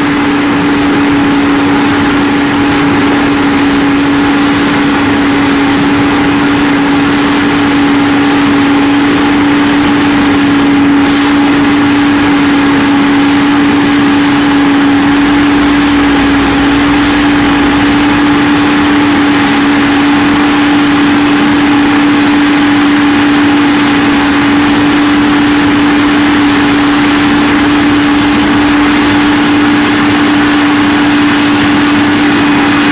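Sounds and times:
diesel paving machinery droning: 0.0 - 32.9.

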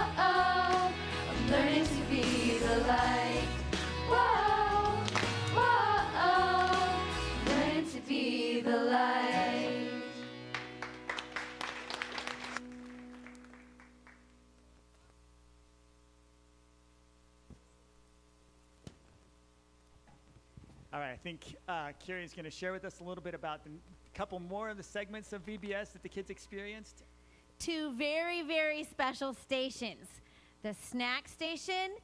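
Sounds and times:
song with voices and instruments: 0.0 - 11.6.

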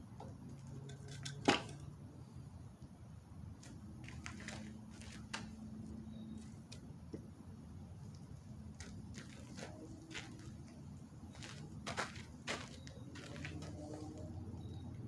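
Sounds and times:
faint low hum: 0.0 - 15.0
wooden board knocking on gravel: 11.4 - 13.8.

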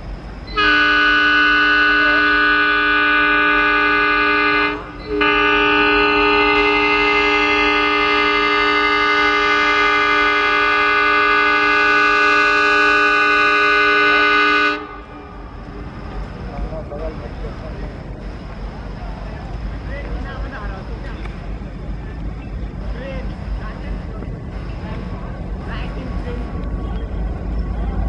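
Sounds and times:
locomotive air horn chord: 0.5 - 15.2.

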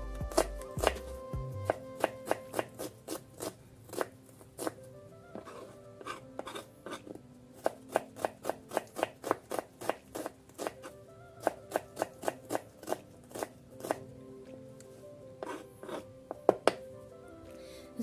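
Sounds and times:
faint background music: 0.0 - 18.0
knife slicing onion on wooden board: 0.2 - 4.8, 5.4 - 14.0, 15.4 - 16.8.

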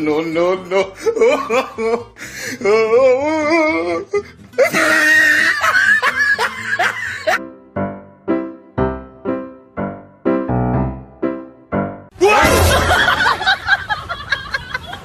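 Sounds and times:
music: 0.2 - 13.2
people laughing: 0.9 - 2.1, 4.6 - 7.4, 12.2 - 15.0
piano tune: 7.0 - 13.8.

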